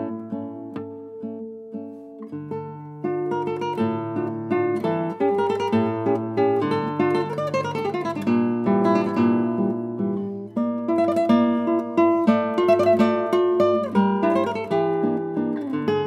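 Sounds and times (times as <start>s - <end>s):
acoustic guitar plucking: 0.0s - 16.0s.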